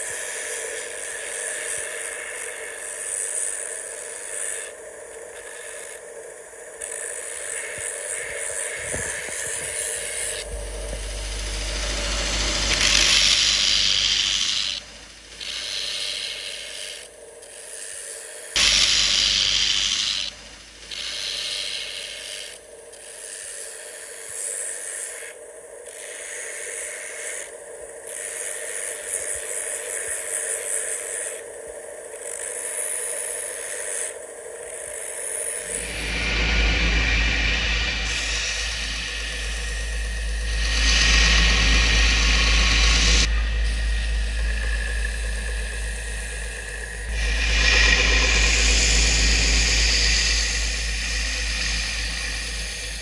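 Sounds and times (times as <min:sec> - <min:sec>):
belt grinder sanding wood: 0:06.8 - 0:25.3, 0:35.0 - 0:53.0.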